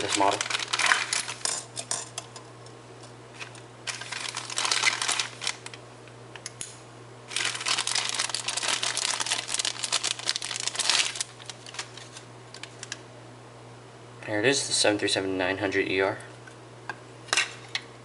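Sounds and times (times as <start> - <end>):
plastic bag crinkling: 0.0 - 1.7, 3.4 - 5.8, 7.3 - 13.0.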